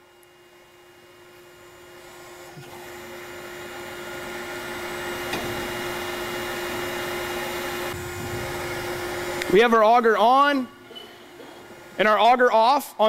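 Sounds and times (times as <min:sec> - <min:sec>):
steady hum: 0:00.0 - 0:13.0
grain auger whirring: 0:02.0 - 0:09.6.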